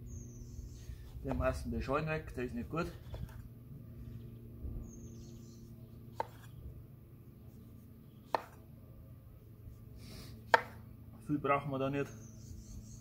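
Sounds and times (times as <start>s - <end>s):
knife cutting an orange: 6.1s - 6.7s, 7.4s - 8.7s, 10.0s - 10.8s.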